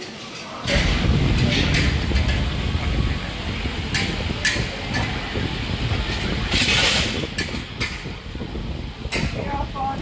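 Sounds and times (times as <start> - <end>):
kitchen rumble: 0.0 - 10.0.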